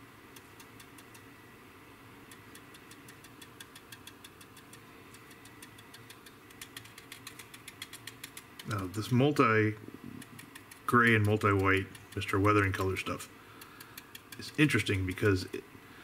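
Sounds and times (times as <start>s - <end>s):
brush tapping on plastic: 2.3s - 9.2s, 10.2s - 15.4s.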